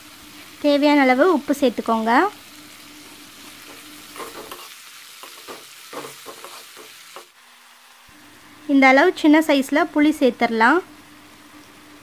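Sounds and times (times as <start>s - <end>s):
vegetables sizzling in oil: 0.0s - 12.0s
spoon scraping a metal pan: 3.4s - 7.3s.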